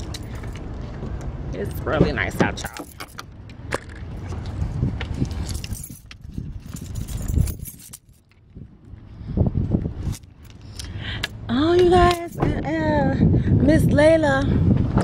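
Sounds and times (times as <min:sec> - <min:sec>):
wind buffeting microphone: 0:03.6 - 0:15.0.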